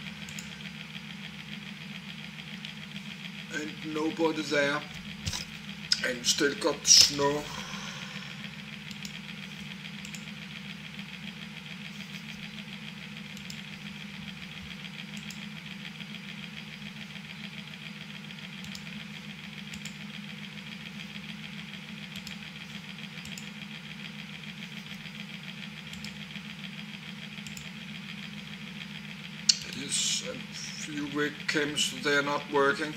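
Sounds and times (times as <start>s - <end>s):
low machine hum: 0.0s - 32.9s
faint clicks: 0.2s - 0.6s, 10.0s - 10.3s, 25.9s - 26.2s, 27.4s - 27.7s.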